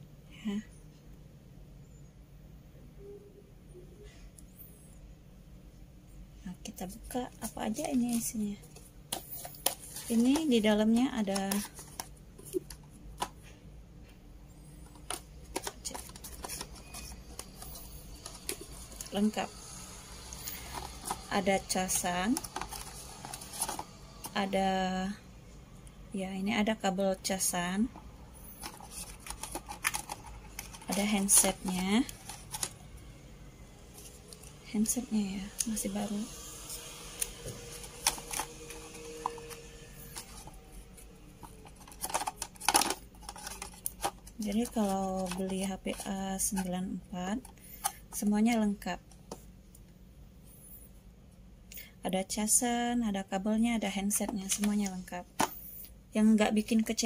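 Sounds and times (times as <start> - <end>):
soft paper rustling: 6.8 - 13.6, 14.6 - 19.5, 20.4 - 24.4, 28.4 - 32.8, 37.5 - 46.7.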